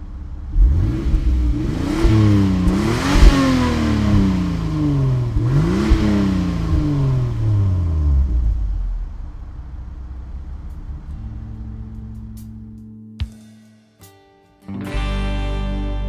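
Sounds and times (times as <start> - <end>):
car engine revving: 0.0 - 12.8.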